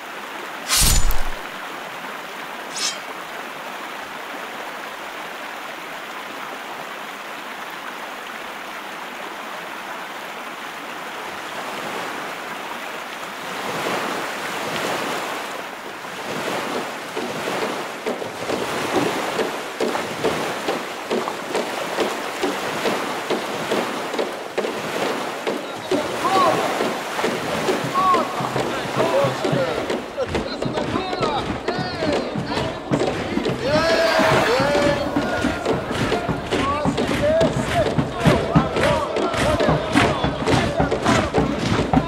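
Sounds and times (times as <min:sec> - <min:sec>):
rushing water: 0:00.0 - 0:42.0
rhythmic splashing: 0:16.0 - 0:42.0.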